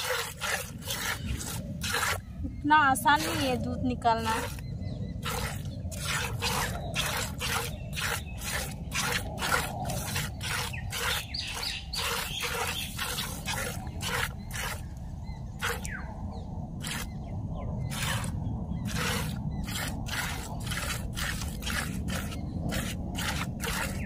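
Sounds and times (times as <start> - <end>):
milk squirting into plastic bucket: 5.2 - 14.8, 18.9 - 24.0.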